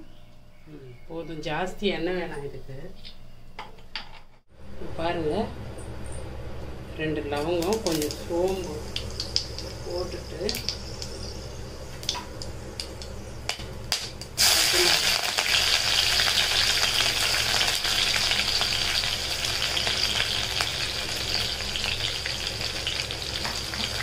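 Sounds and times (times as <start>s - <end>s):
onion frying sizzle: 7.6s - 24.0s
spices crackling in hot oil: 7.6s - 24.0s.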